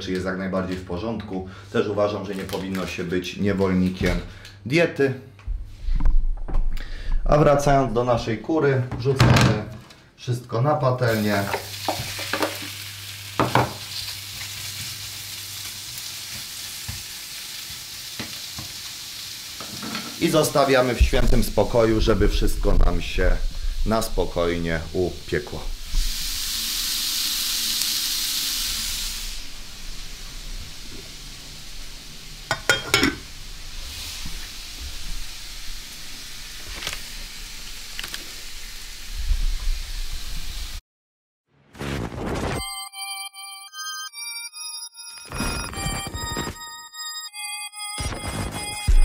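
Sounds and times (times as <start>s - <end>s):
chicken sizzling in a frying pan: 11.1s - 21.8s, 22.4s - 40.8s.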